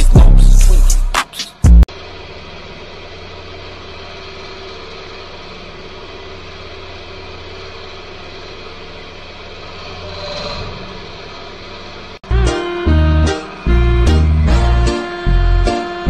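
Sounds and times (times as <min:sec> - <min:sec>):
loud music snatch: 0:00.0 - 0:01.9
hydraulic press pump humming: 0:01.9 - 0:16.0.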